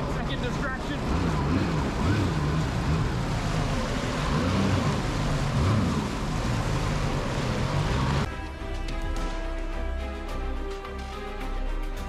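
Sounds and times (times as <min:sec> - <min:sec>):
jet ski engine running: 0:00.0 - 0:08.8
wind and water rushing: 0:00.0 - 0:10.9.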